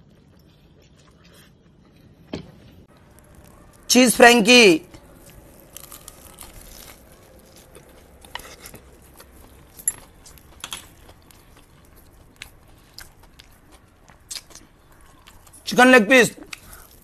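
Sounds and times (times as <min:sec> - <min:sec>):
man chewing food: 0:00.0 - 0:03.9, 0:04.9 - 0:15.7, 0:16.4 - 0:17.0.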